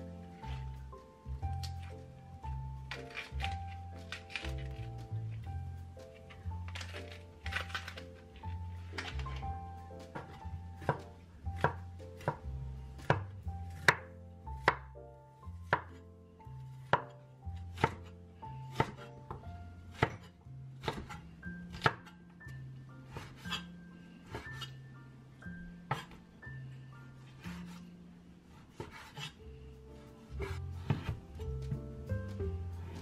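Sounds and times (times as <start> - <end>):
cleaver chopping on cutting board: 10.2 - 12.4, 13.8 - 14.8, 17.7 - 18.1, 18.7 - 22.1, 25.9 - 26.2, 30.4 - 31.8.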